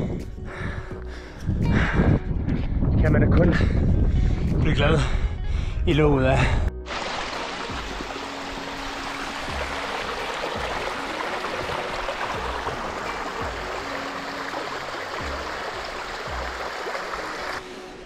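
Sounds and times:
wind thumps on microphone: 0.0s - 4.9s
rushing stream water: 6.9s - 18.0s.

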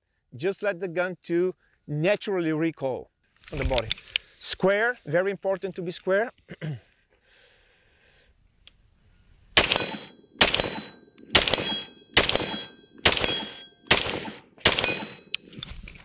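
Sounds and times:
rifle shots: 9.6s - 15.4s
metallic ring of steel target: 9.6s - 15.5s.

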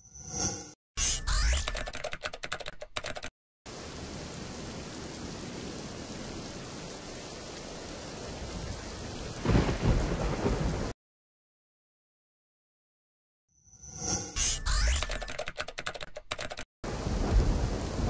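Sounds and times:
typing-like clicks: 1.3s - 3.3s, 14.7s - 16.7s
heavy rain hissing: 3.7s - 10.9s, 16.9s - 18.0s
thunderclap: 8.4s - 11.0s, 16.9s - 18.0s.

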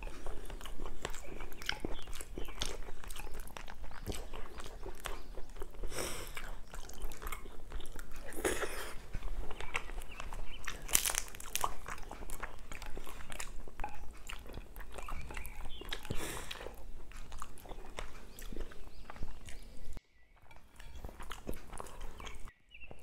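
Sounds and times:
chewing and wet smacking: 0.0s - 23.0s.

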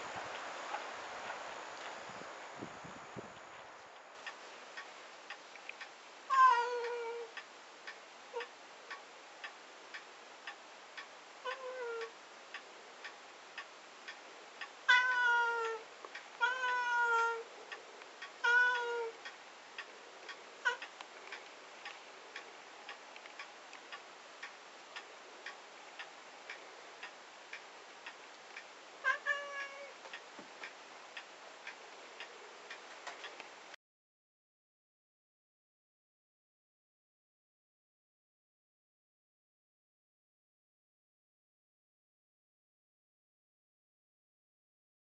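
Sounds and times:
cat meowing: 6.3s - 7.3s, 11.4s - 12.1s, 14.9s - 15.8s, 16.4s - 17.5s, 18.4s - 19.2s, 29.0s - 29.9s
faint ticking: 6.8s - 33.8s.

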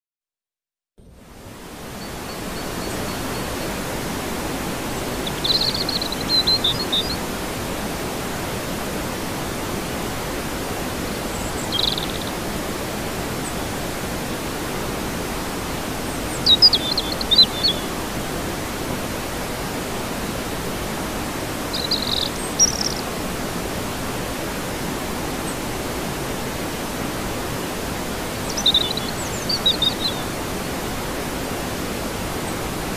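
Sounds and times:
bird chirping: 5.2s - 7.2s, 11.3s - 12.4s, 16.1s - 17.9s, 21.7s - 23.0s, 28.4s - 30.3s.

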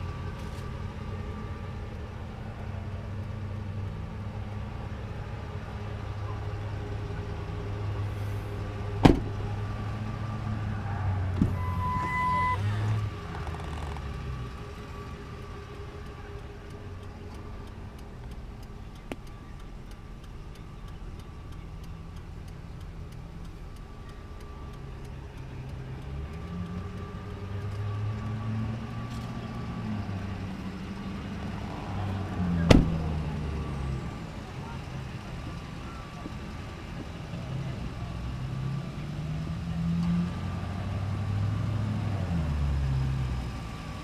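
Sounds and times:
truck door shutting: 9.0s - 9.5s, 11.3s - 12.6s, 32.6s - 33.0s
faint regular ticking: 13.9s - 31.6s.

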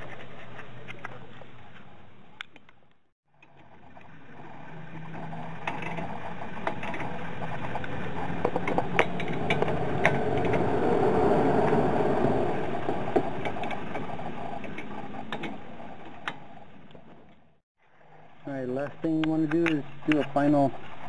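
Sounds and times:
rushing background noise: 4.3s - 16.8s.

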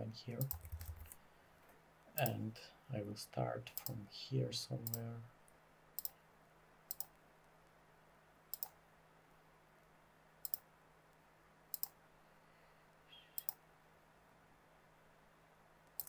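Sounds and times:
computer mouse button clicking: 8.5s - 8.7s.

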